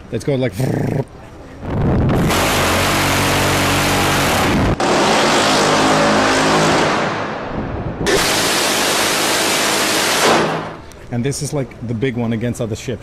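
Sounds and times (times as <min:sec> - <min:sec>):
gatling gun firing bursts: 0:08.1 - 0:10.8.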